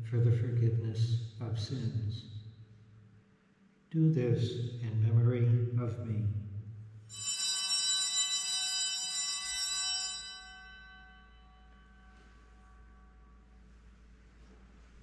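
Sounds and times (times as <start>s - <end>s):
bell ringing with bright tones: 7.1s - 13.7s.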